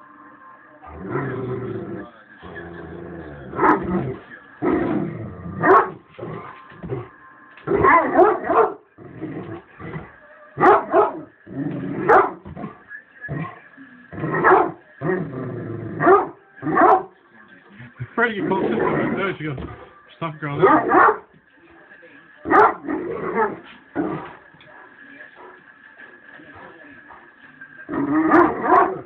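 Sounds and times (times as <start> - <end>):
large dog barking: 3.5 - 4.1, 5.6 - 6.0, 7.7 - 8.9, 10.6 - 11.3, 12.0 - 12.5, 14.2 - 14.8, 16.0 - 17.1, 20.6 - 21.3, 22.4 - 24.2, 27.9 - 29.0.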